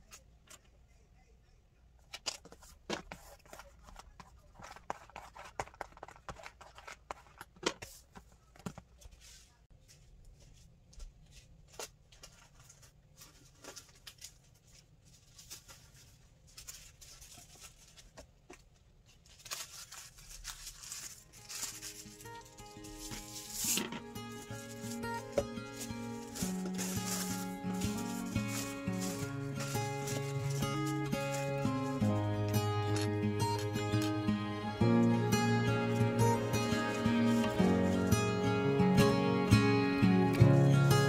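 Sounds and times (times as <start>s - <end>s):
paper and cardboard rustling: 2.2s - 10.0s, 11.3s - 34.2s, 35.8s - 38.1s
music with held notes: 21.8s - 41.0s.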